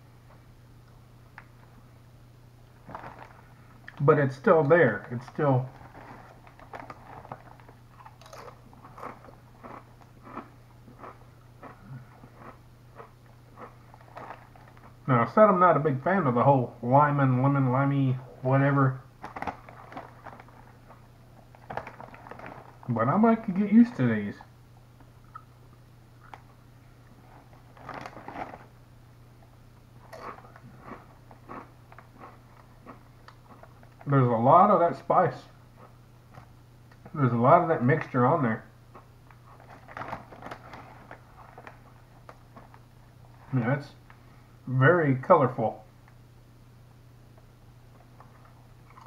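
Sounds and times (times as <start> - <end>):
low steady hum: 0.0 - 49.0
tortilla chips being chewed: 2.8 - 4.0, 5.7 - 15.0, 19.2 - 22.9, 25.2 - 28.7, 29.4 - 34.1, 38.9 - 42.8, 48.0 - 49.0.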